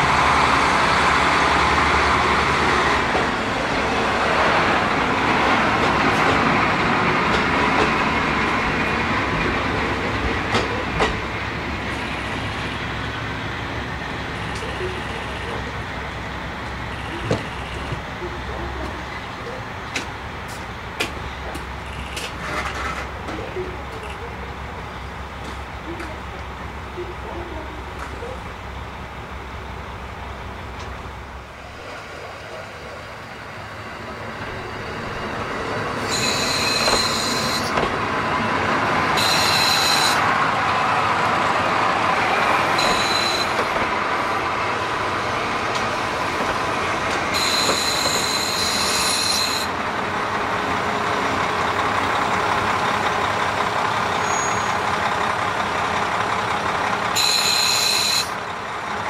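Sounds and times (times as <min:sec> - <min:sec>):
diesel train engine and rail noise: 0:00.0 - 0:59.0
wheels squealing: 0:36.0 - 0:37.8, 0:39.2 - 0:40.2, 0:42.7 - 0:43.8, 0:47.3 - 0:49.7, 0:54.2 - 0:54.8.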